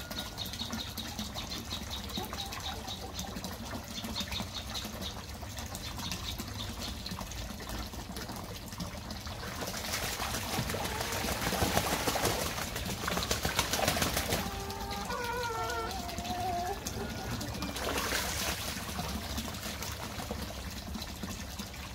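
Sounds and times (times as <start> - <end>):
water trickling from a pipe: 0.0 - 21.9
geese splashing and flapping wings: 8.1 - 21.6
goose calling: 14.4 - 17.4.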